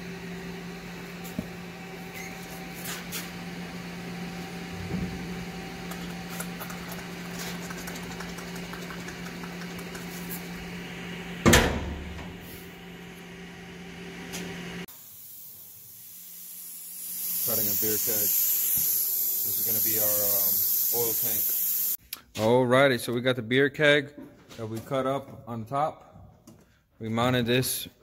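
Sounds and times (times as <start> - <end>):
metal door clanging shut: 11.4 - 12.5.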